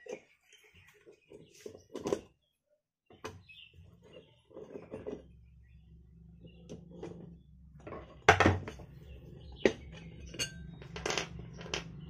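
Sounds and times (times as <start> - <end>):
metal parts clinking and clanking: 9.6 - 12.0.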